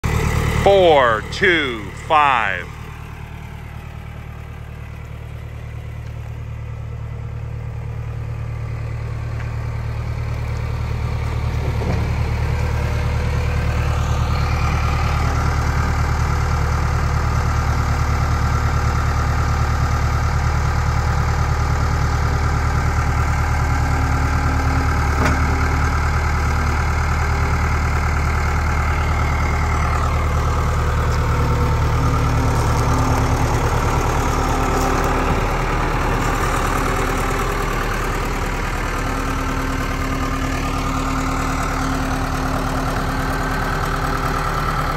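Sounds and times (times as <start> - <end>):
diesel engine running: 0.0 - 44.9.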